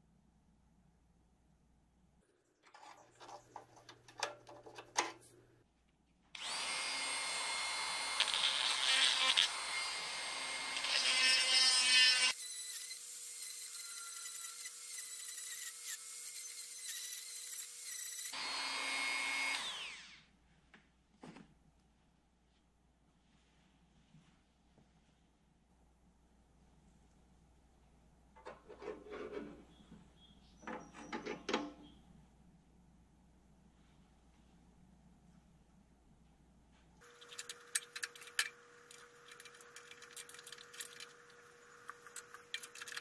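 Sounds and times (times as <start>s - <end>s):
rotary tool high whine: 6.4s - 20.3s, 37.0s - 43.0s.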